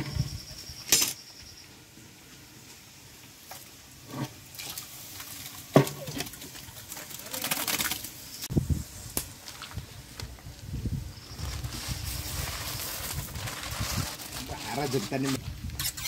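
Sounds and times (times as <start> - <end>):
soft scraping rustle: 8.8 - 16.0.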